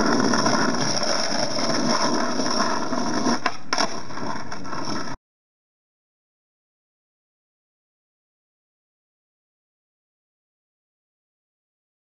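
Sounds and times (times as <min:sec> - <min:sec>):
skateboard clacks: 0:00.0 - 0:05.2
skateboard wheels rolling on asphalt: 0:00.0 - 0:05.2.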